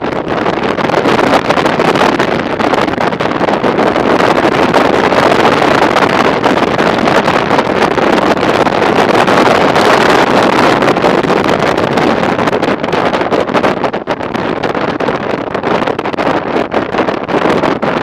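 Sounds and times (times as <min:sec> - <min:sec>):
wind rush on microphone: 0:00.0 - 0:18.0.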